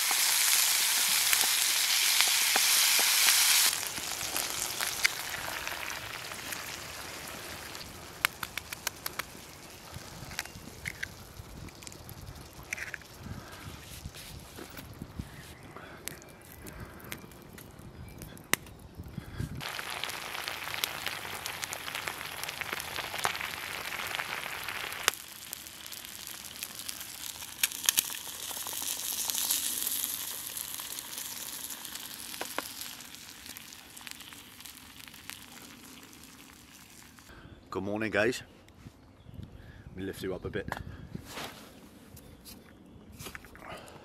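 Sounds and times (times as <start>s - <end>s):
food sizzling in a frying pan: 0.0s - 13.2s, 19.6s - 37.3s
wood fire popping: 0.0s - 37.3s.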